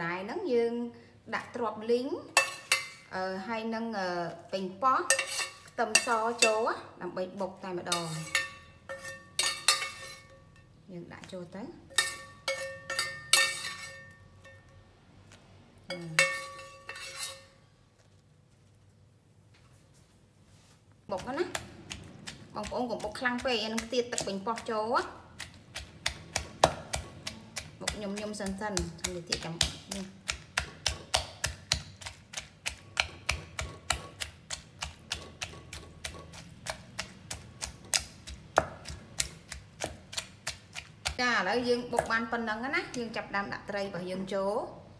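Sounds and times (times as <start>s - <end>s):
wooden pestle pounding in mortar: 21.1s - 41.2s.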